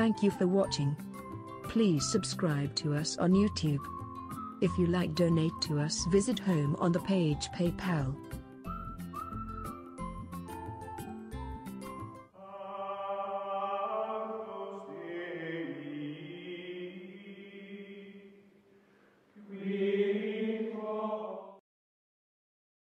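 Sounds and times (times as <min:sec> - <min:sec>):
slow chant-like chords: 0:12.4 - 0:18.5, 0:19.4 - 0:21.6.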